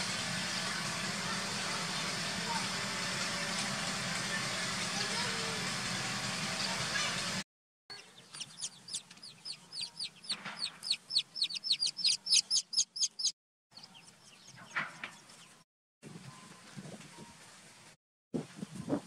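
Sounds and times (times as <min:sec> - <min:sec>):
baby chicks peeping: 0:07.9 - 0:15.4.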